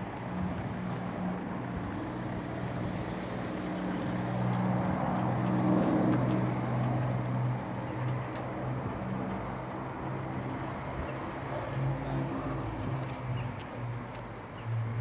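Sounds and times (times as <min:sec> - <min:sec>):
propeller plane engines droning: 0:00.0 - 0:15.0
small birds chirping: 0:06.6 - 0:15.0.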